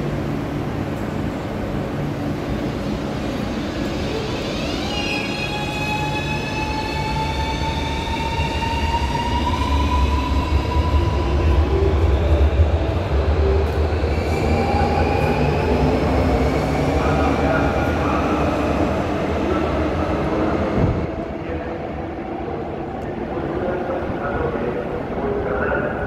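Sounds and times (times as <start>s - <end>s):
low rumble of train: 0.0s - 26.0s.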